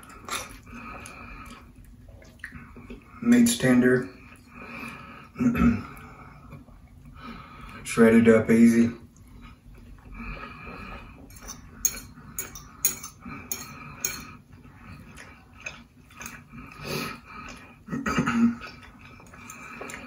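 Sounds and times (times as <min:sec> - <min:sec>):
fork clinking on a plate: 0:11.3 - 0:14.4.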